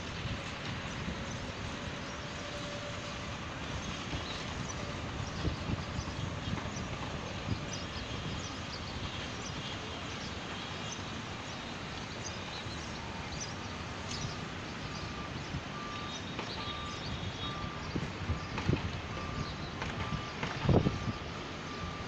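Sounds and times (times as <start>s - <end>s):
distant machinery: 0.0s - 22.0s
traffic: 0.0s - 22.0s
small birds chirping: 3.8s - 18.5s
reversing alarm beeping: 13.0s - 22.0s.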